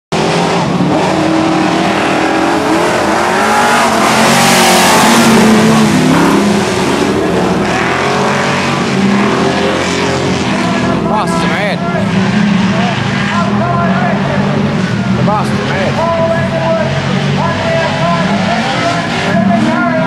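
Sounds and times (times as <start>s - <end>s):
race car engines revving: 0.1s - 20.0s.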